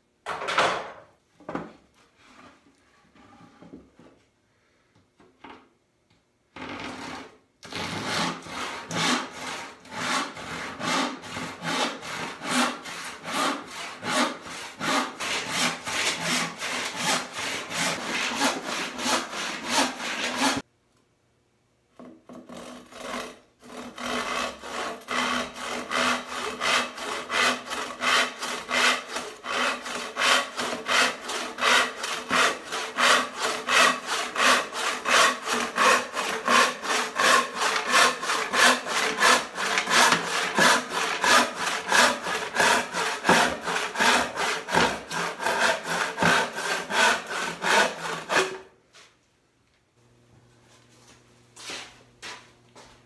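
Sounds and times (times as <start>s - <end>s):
handsaw ripping wood: 7.6s - 20.6s, 22.5s - 48.7s.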